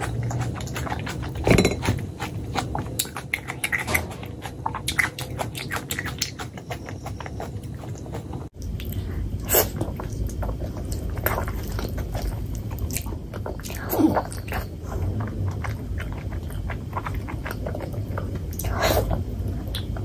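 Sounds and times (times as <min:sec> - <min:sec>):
chewing: 0:00.0 - 0:20.0.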